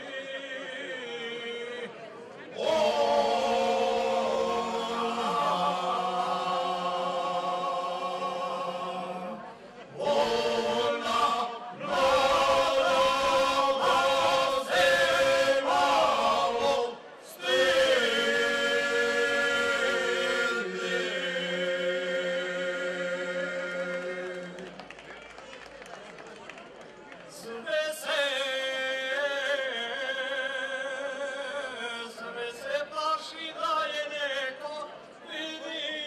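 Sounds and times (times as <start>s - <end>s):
men singing unaccompanied folk song: 0.0s - 24.7s, 27.4s - 36.0s.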